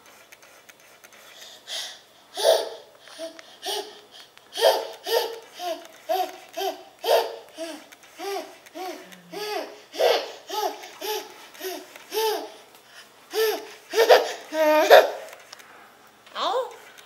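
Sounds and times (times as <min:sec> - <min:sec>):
toddler laughing: 0:02.3 - 0:12.6, 0:13.3 - 0:15.3.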